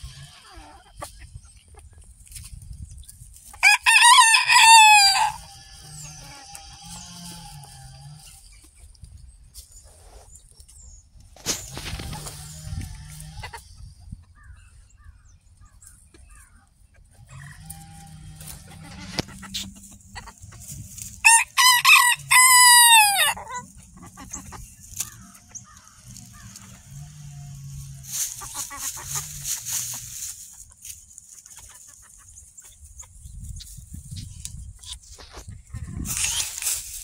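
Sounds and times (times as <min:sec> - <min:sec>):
rooster crowing: 0:03.6 - 0:05.5, 0:21.2 - 0:23.6.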